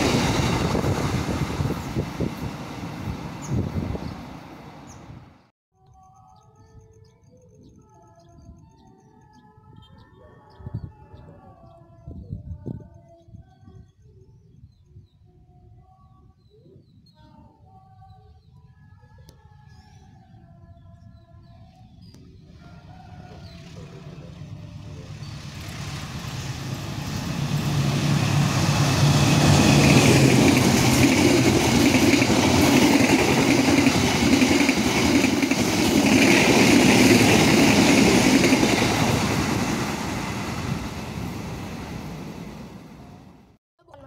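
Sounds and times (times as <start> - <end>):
locomotive engine drone: 22.4 - 32.6
train wheels rumbling on rails: 23.6 - 43.1.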